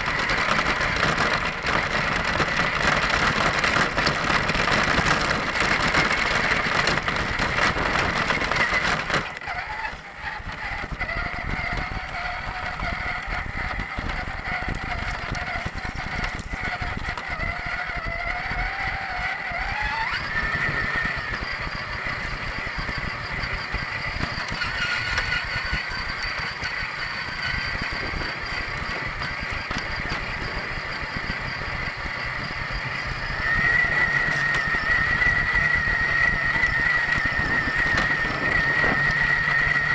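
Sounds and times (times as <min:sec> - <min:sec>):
toy car motor whining: 0:00.0 - 0:39.9
tyres crunching over gravel: 0:00.0 - 0:39.9
tyres running over grass: 0:00.0 - 0:39.9.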